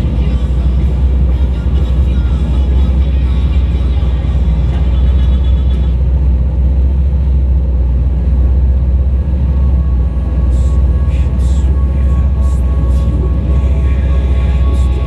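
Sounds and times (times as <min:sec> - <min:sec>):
speedboat engine rumbling: 0:00.0 - 0:15.0.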